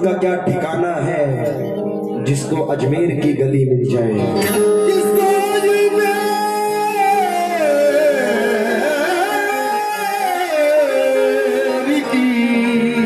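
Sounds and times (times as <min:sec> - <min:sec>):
man singing long note: 0:04.6 - 0:13.0.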